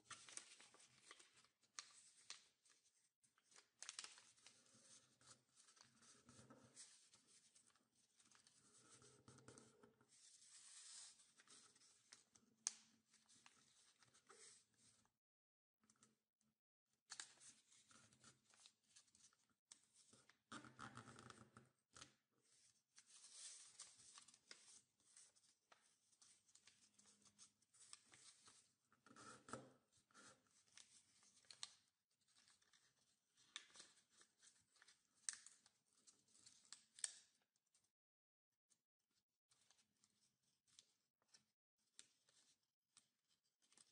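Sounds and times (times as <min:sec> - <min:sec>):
paper rustling and crinkling: 0:00.0 - 0:02.8, 0:03.4 - 0:08.9, 0:22.5 - 0:28.7, 0:30.6 - 0:37.2.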